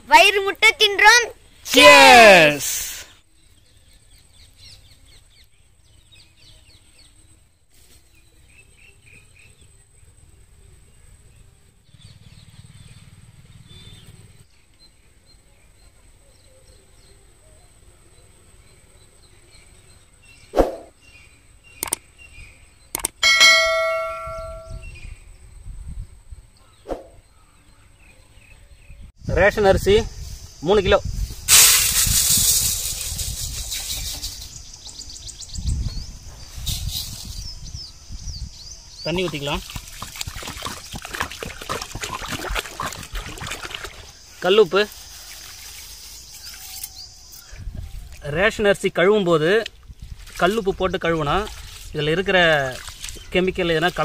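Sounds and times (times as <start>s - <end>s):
bird chirps: 18.6s - 25.3s
small bird chirping: 18.7s - 25.3s, 32.3s - 48.2s
sharp clicks: 21.8s - 22.1s, 22.9s - 23.2s
rice poured into metal basin: 31.5s - 34.5s.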